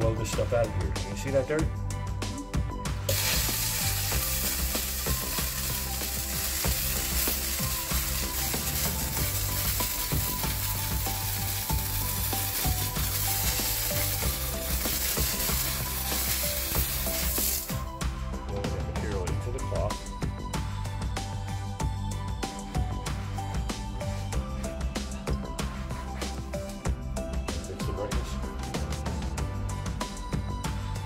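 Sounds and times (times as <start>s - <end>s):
steam cleaner hissing: 3.1s - 17.9s.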